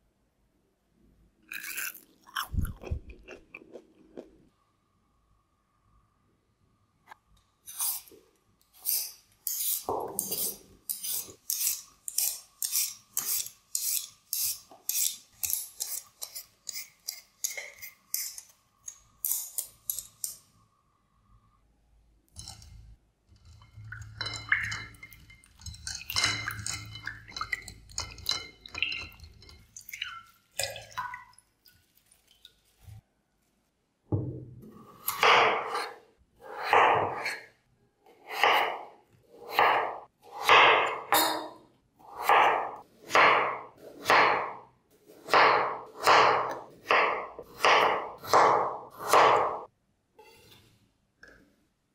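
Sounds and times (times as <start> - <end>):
peeler scraping potato skin: 8.8 - 20.4.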